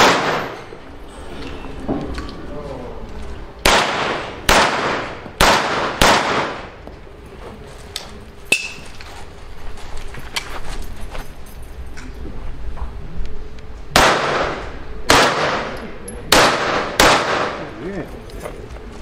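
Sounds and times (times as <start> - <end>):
gunshots echoing: 0.0 - 0.8, 3.6 - 6.8, 13.9 - 17.8.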